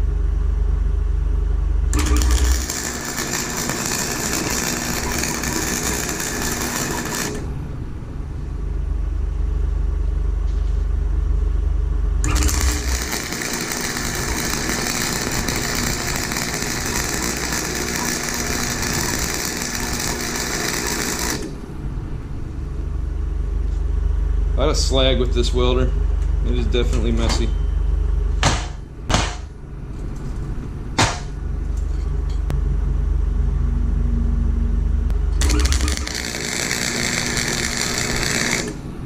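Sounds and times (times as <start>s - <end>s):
low steady hum: 0.0s - 39.0s
welding arc crackling: 1.9s - 7.6s, 12.2s - 21.6s, 35.1s - 39.0s.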